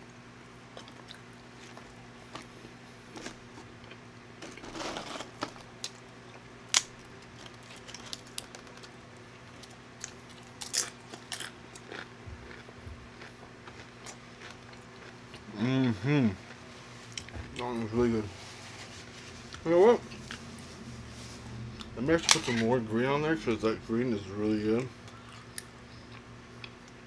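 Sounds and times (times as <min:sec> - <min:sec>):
faint low hum: 0:00.0 - 0:27.0
crunching chips: 0:06.7 - 0:16.6.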